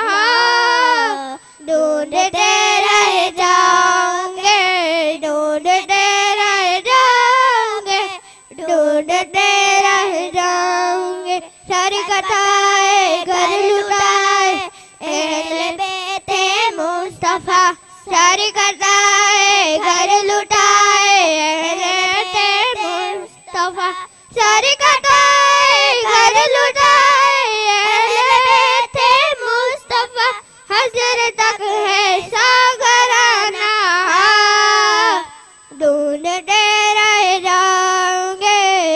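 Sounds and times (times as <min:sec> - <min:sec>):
girls singing through microphone: 0:00.0 - 0:38.9.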